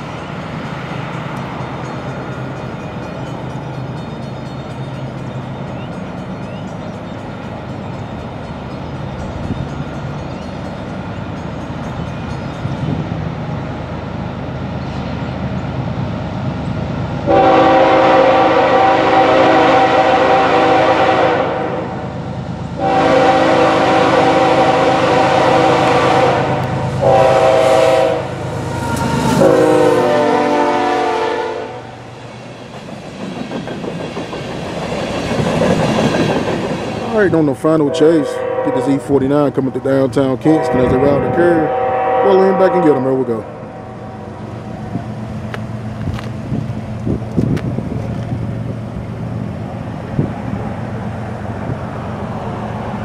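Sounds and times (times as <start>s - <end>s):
locomotive rumbling: 0.0s - 53.0s
train air horn blasts: 17.2s - 22.0s, 22.8s - 32.0s, 37.8s - 39.2s, 40.4s - 44.3s.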